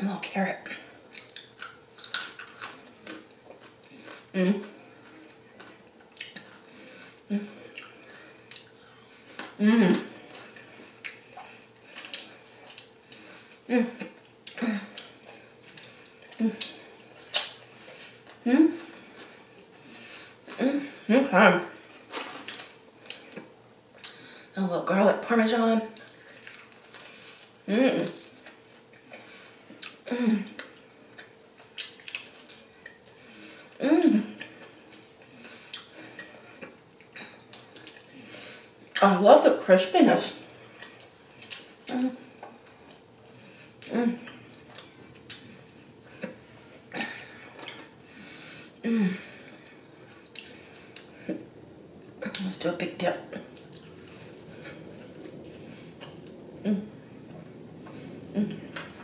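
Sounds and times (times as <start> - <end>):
wet mouth clicks and smacks: 1.1 - 2.8, 16.6 - 17.6
chewing and wet mouth sounds: 1.1 - 20.6, 25.9 - 39.1, 40.3 - 48.0, 49.6 - 52.5, 53.3 - 59.0
person humming mm: 56.6 - 57.0, 58.3 - 58.8.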